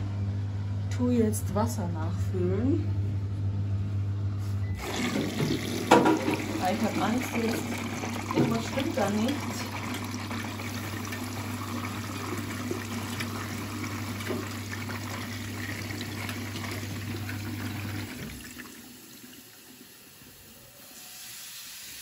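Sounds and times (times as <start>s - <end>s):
water trickle: 6.4s - 20.0s.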